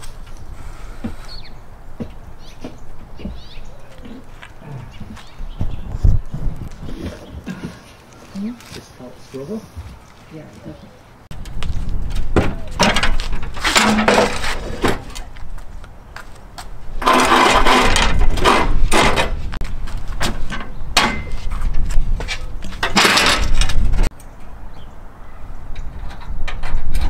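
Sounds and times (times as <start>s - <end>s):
metal ramp rattling and scraping: 12.6s - 15.2s, 17.0s - 19.5s, 20.2s - 24.1s.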